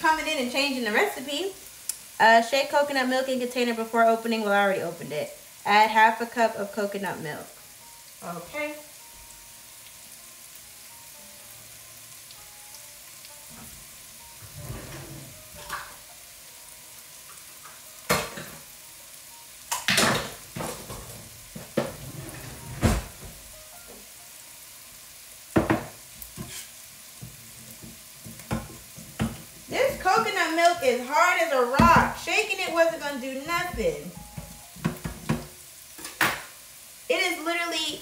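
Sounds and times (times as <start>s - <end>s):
vegetables sizzling in a frying pan: 0.0s - 38.0s.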